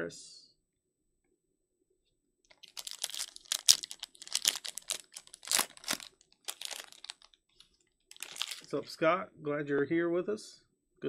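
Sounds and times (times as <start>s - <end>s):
foil wrapper crinkling and tearing: 2.5s - 7.4s, 8.1s - 8.8s.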